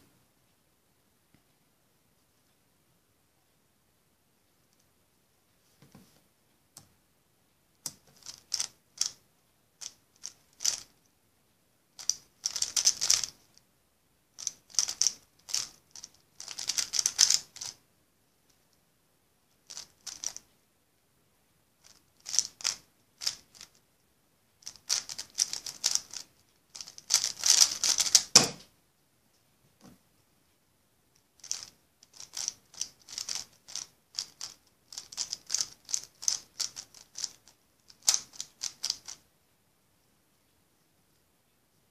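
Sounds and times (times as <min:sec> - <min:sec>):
puzzle cube clicking: 0:07.8 - 0:09.2, 0:09.8 - 0:11.0, 0:12.0 - 0:13.5, 0:14.4 - 0:17.8, 0:19.7 - 0:20.5, 0:21.8 - 0:23.8, 0:24.6 - 0:28.6, 0:31.4 - 0:39.2
cube thump on wooden table: 0:27.5 - 0:28.7.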